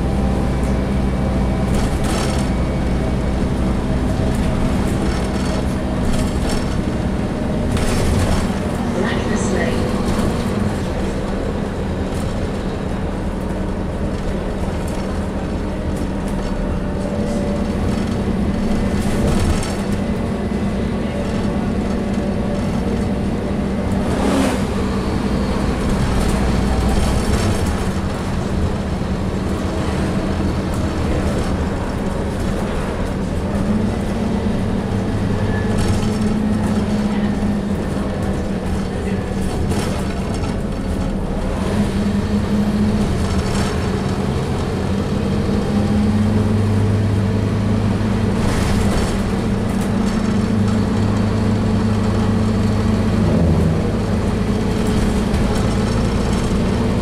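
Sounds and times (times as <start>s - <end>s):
bus diesel engine running: 0.0s - 57.0s.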